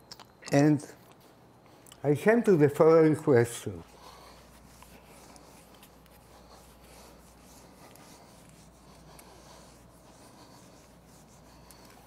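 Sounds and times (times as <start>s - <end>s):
low room hum: 0.0s - 12.0s
eraser rubbing on whiteboard: 3.9s - 12.0s.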